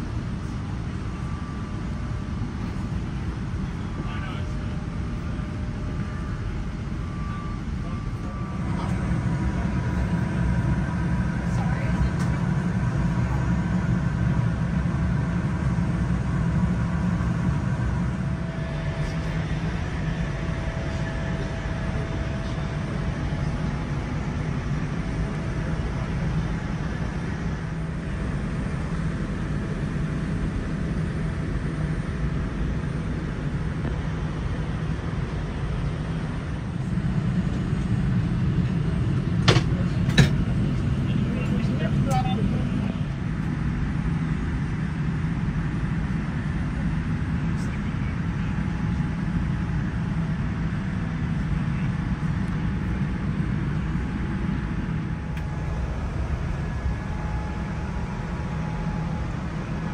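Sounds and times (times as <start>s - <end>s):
faint steady tones: 0.0s - 33.0s
cabin air conditioning rumble: 0.0s - 59.9s.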